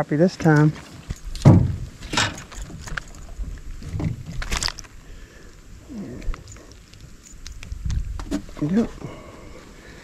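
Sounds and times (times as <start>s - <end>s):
light rustling: 0.4s - 5.0s.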